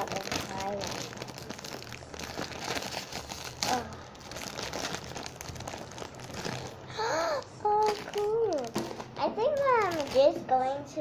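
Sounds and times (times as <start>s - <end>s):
plastic wrapper crinkling: 0.0s - 10.4s.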